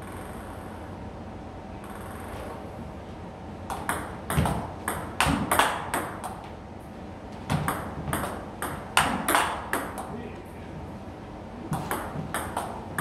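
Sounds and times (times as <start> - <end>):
ball bouncing on table: 3.7 - 6.5, 7.5 - 10.1, 11.7 - 13.0
ball clicking off paddles: 3.7 - 6.5, 7.5 - 10.2, 11.7 - 13.0.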